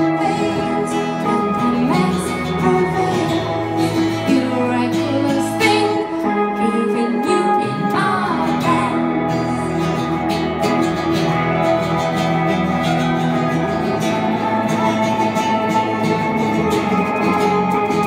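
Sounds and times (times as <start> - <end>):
woman singing: 0.0 - 10.2
electric guitars playing chords: 0.0 - 18.0.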